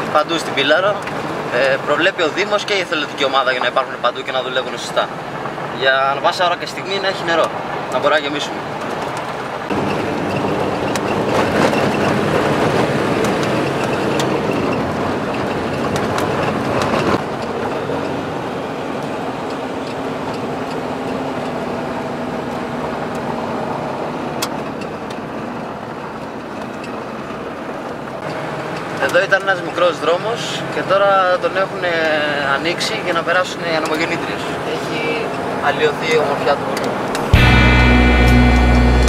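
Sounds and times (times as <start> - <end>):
car engine running: 8.7 - 39.0.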